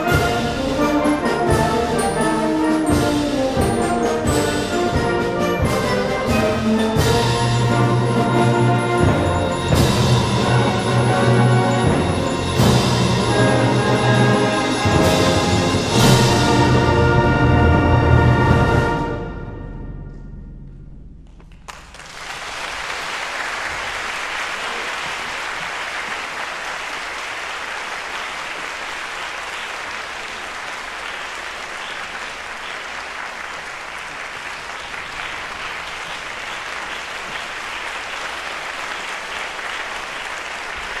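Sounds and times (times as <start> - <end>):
large crowd clapping: 21.3 - 41.0.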